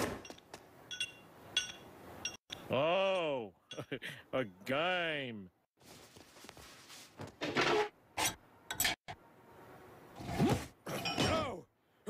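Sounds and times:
clothing rustling: 5.8 - 7.3.

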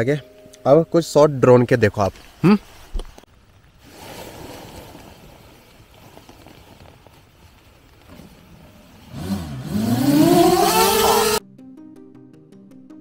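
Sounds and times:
drone motors whining: 9.2 - 11.4.

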